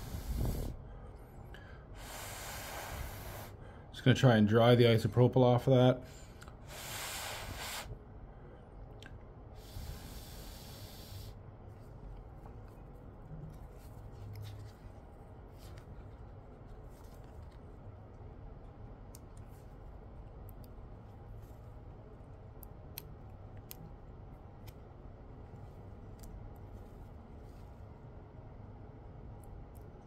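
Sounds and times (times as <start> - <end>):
compressed air blasts hissing: 0.0 - 0.8, 2.0 - 3.6, 6.6 - 8.0, 9.6 - 11.4.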